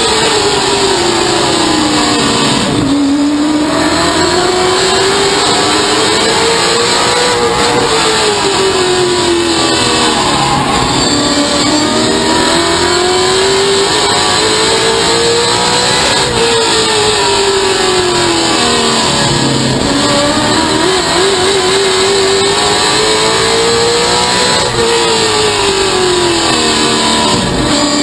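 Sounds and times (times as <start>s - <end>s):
race car engine revving: 0.0s - 28.0s.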